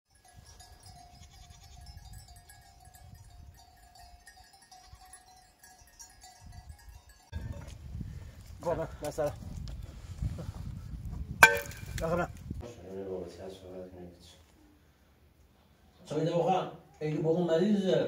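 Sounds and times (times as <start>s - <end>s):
sheep and goats bleating: 0.8s - 2.1s.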